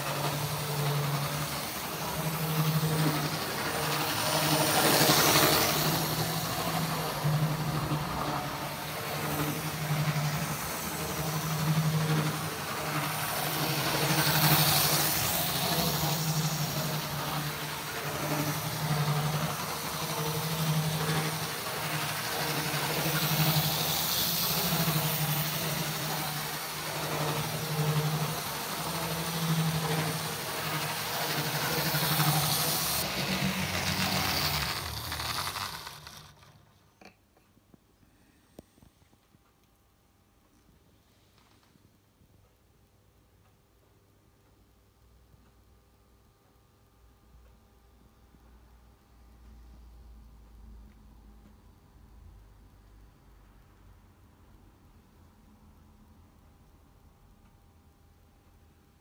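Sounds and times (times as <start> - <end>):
model train motor humming: 0.0 - 37.1.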